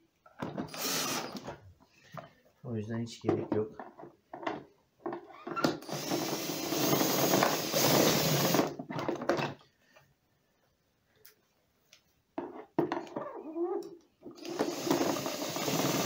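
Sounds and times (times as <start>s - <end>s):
cordless drill driving screw: 0.6s - 1.5s, 5.6s - 8.7s, 14.4s - 16.0s.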